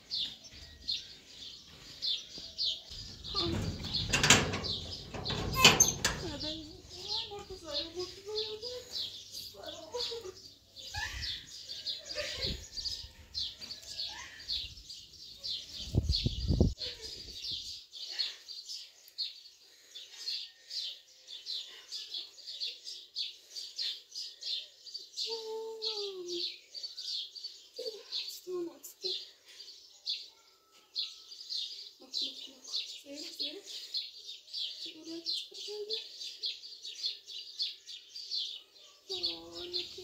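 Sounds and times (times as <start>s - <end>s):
bird chirping: 0.0s - 40.0s
low rumbles: 3.0s - 7.6s.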